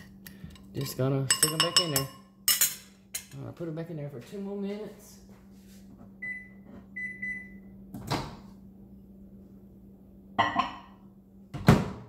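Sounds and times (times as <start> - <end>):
microwave keypad beeping: 6.2 - 7.7.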